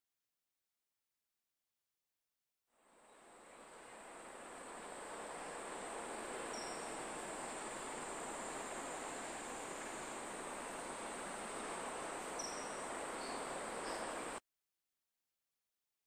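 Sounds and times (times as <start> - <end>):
high insect buzz: 3.0 - 14.4.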